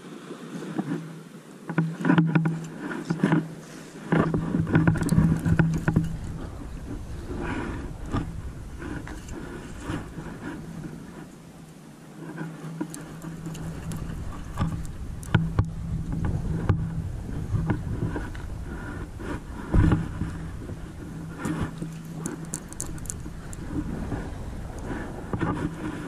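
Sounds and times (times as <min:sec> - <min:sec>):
wind buffeting microphone: 0:04.0 - 0:26.0
light clicks and knocks: 0:04.1 - 0:07.1, 0:12.3 - 0:18.8, 0:19.6 - 0:23.9
steady low hum: 0:04.1 - 0:26.0.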